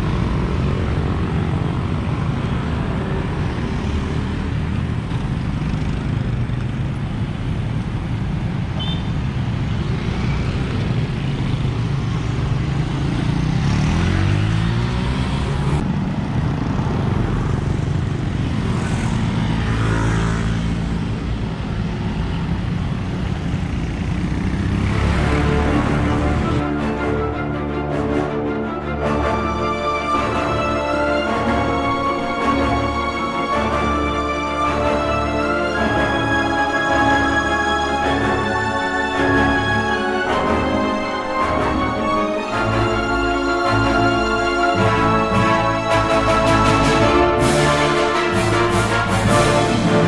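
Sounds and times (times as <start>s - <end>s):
scooters and motorcycles passing: 0.0s - 26.7s
cars passing: 0.0s - 50.0s.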